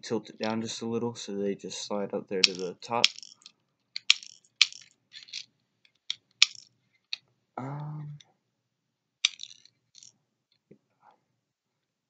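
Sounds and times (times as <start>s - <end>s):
low hum from a voice: 7.6s - 8.2s.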